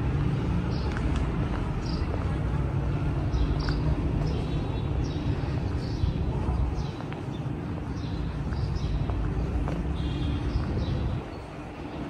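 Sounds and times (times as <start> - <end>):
low rumble of city traffic: 0.0 - 12.0
small birds chirping: 3.2 - 11.5.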